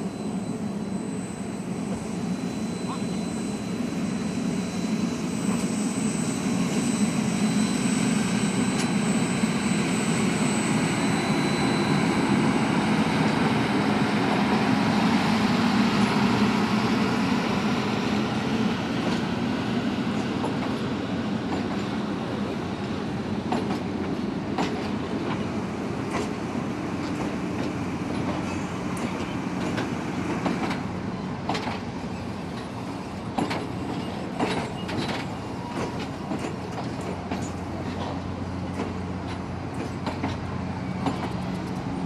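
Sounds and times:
train wheels rumbling on rails: 0.0s - 42.0s.

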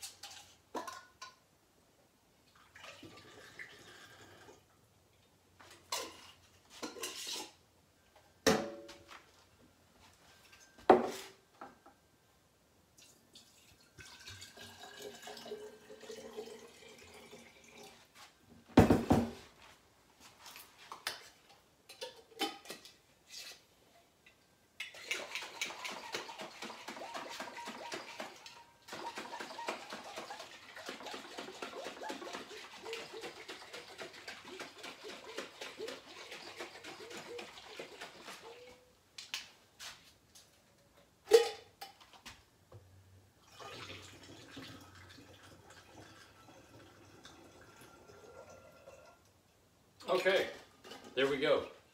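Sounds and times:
water running into glass jar: 13.0s - 18.0s, 43.4s - 49.3s
water sloshing in shaken jar: 24.9s - 38.8s.

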